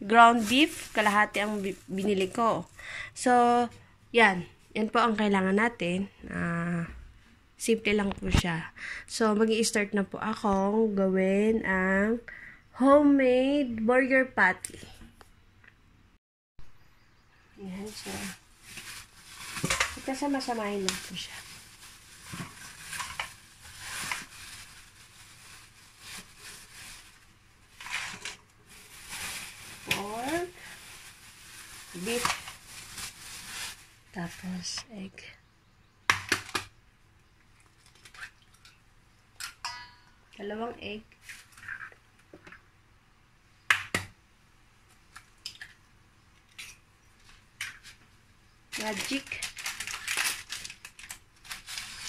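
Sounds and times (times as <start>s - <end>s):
plastic bag crinkling: 0.1s - 2.7s, 17.7s - 34.8s, 48.7s - 52.0s.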